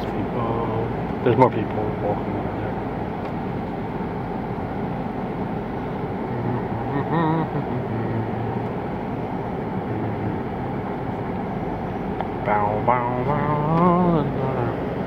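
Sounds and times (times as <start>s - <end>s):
car engine and tyres hum: 0.0s - 15.0s
wavering voice: 6.3s - 8.6s, 12.5s - 14.9s.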